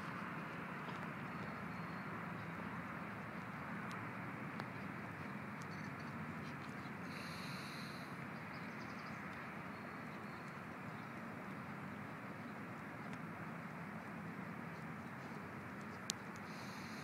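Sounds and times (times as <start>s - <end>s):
low hiss: 7.0s - 8.2s, 16.4s - 17.0s.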